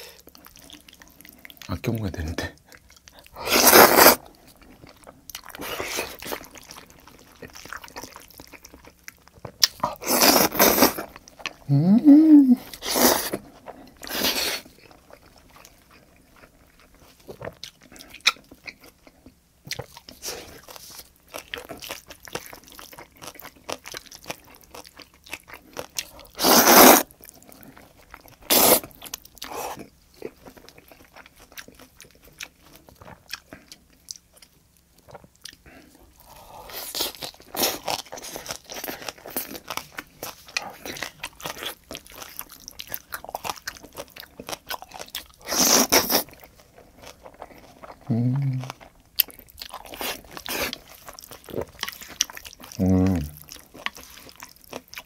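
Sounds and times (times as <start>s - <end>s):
wet chewing and crunching: 0.0s - 11.7s, 12.6s - 55.0s
spaghetti slurping: 3.4s - 4.2s, 26.3s - 27.1s.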